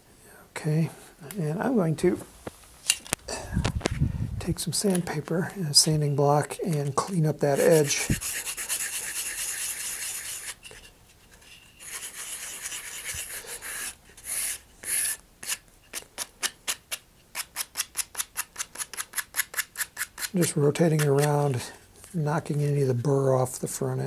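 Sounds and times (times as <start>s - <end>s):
sandpaper rubbing tube: 7.5s - 10.6s, 11.8s - 21.5s.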